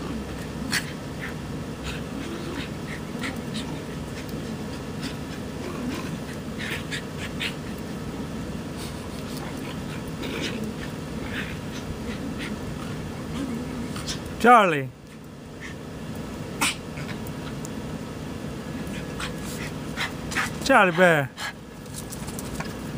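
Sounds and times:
dog growling: 0:00.0 - 0:14.4, 0:16.5 - 0:17.8, 0:18.6 - 0:21.6
dogs scuffling: 0:21.7 - 0:22.9.

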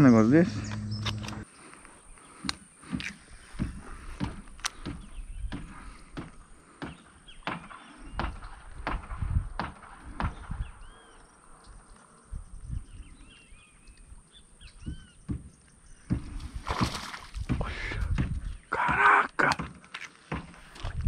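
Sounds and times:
small birds chirping: 0:00.0 - 0:08.9, 0:09.6 - 0:20.7
footsteps on grass: 0:16.2 - 0:17.6.

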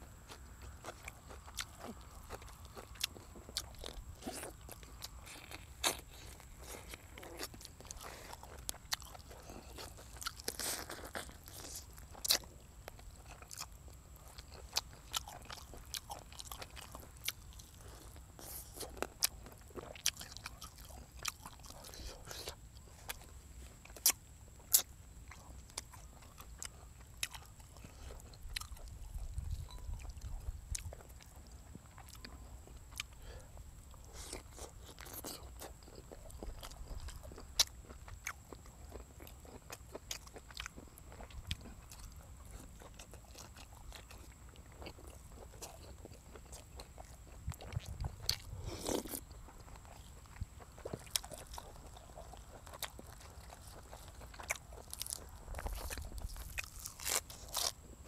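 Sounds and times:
man chewing with wet mouth clicks: 0:00.2 - 0:58.0
loud crunch: 0:44.8 - 0:57.8.

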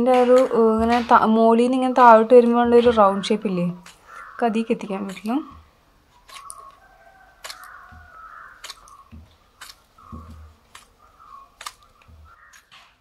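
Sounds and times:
soft low thumps: 0:00.2 - 0:03.6, 0:09.0 - 0:10.7.

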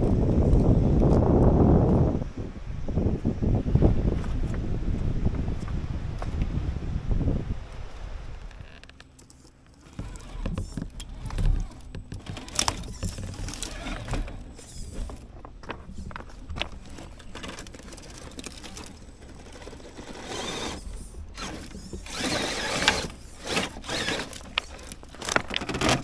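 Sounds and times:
pebbles crunching under tyres: 0:07.8 - 0:26.0
toy car drivetrain whirr: 0:09.4 - 0:15.3, 0:15.9 - 0:26.0.

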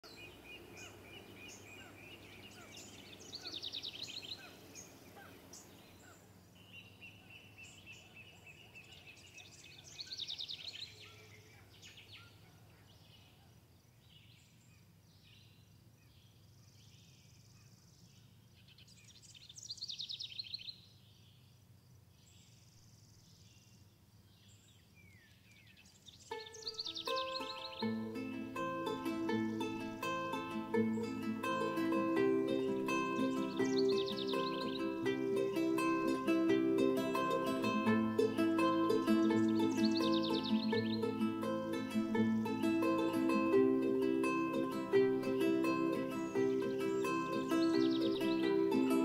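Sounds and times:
bird trilling song: 0:00.0 - 0:13.4, 0:14.1 - 0:21.4, 0:24.4 - 0:49.0
high bird chirps: 0:26.2 - 0:30.3, 0:30.9 - 0:42.6, 0:45.8 - 0:49.0.

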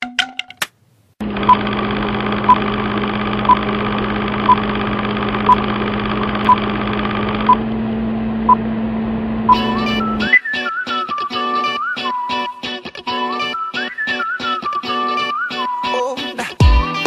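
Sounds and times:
movie projector whirr: 0:01.2 - 0:10.3
short beeps: 0:09.5 - 0:10.4.

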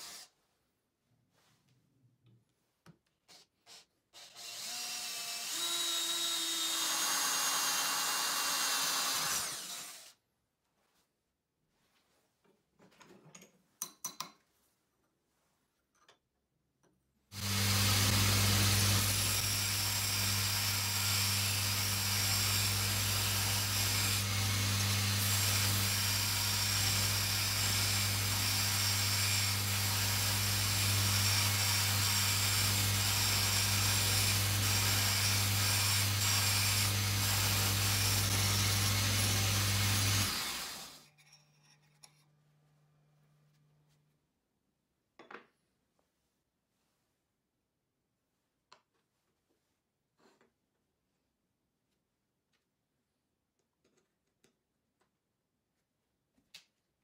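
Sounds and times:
belt sander motor hum: 0:17.4 - 0:20.7.

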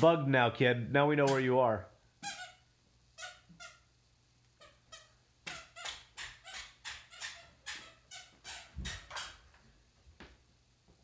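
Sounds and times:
squeaky shoes squeaking: 0:04.9 - 0:09.4.

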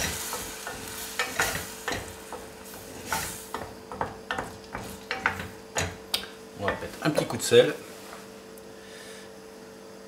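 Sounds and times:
cream hissing on heat: 0:00.0 - 0:06.1
wooden spoon knocking on pan: 0:00.0 - 0:07.0.

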